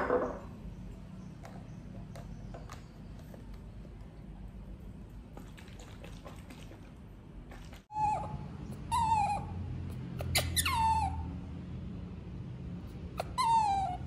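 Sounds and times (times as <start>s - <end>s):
baby monkey crying: 7.9s - 11.3s, 13.1s - 14.0s.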